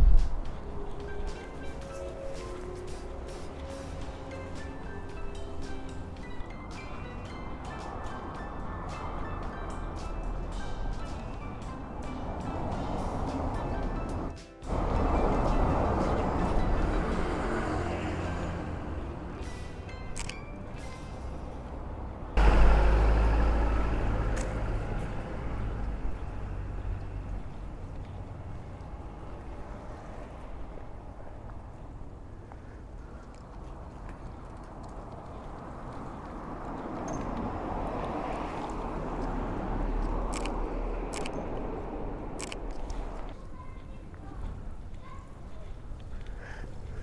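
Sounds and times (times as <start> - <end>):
loud rumbling traffic: 0.0 - 47.0
road traffic: 0.0 - 47.0
sharp clicks: 40.0 - 41.7.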